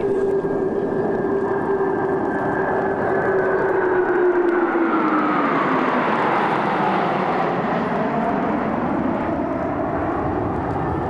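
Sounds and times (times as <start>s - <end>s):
fighter jets roaring past: 0.0s - 11.0s.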